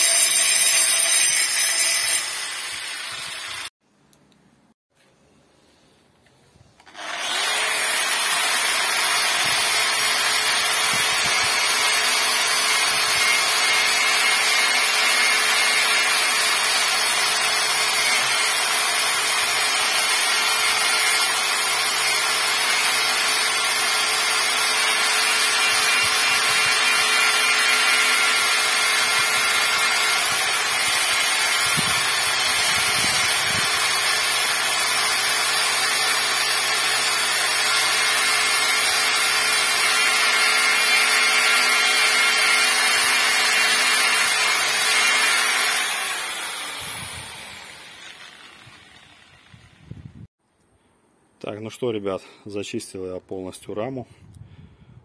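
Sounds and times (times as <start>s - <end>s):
angle grinder grinding metal: 0.0s - 3.7s, 6.8s - 50.0s.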